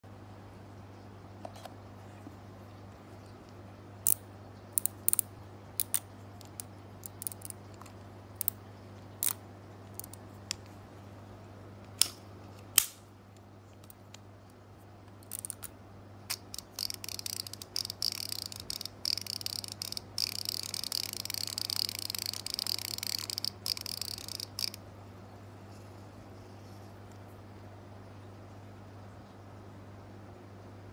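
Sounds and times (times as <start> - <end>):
fishing reel spool clicking and hissing: 4.8 - 7.6, 10.0 - 10.2, 15.2 - 15.6, 16.3 - 24.8
fishing reel drag clicks: 16.6 - 24.8.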